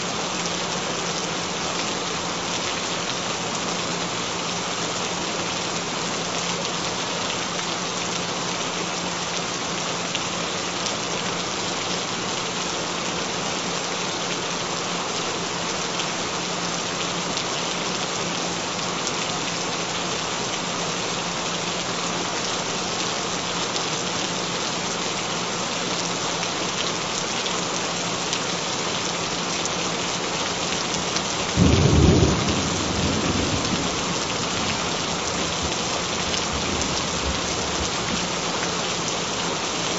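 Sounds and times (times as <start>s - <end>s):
steady rain falling: 0.0s - 39.9s
thunder clap rumbling: 31.6s - 35.8s.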